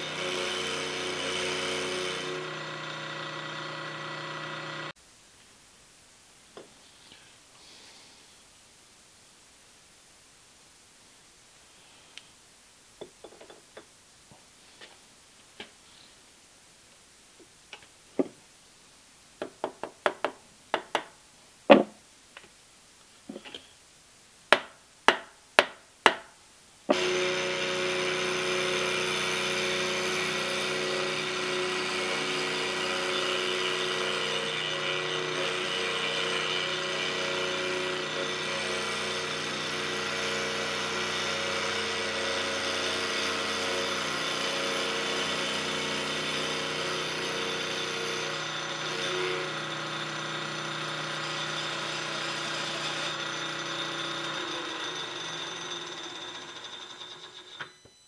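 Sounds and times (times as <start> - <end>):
end mill cutting metal: 0.0 - 4.9, 26.9 - 57.7
milling machine motor humming: 0.0 - 4.9, 26.9 - 57.6
hammer tapping metal block: 24.5 - 26.3.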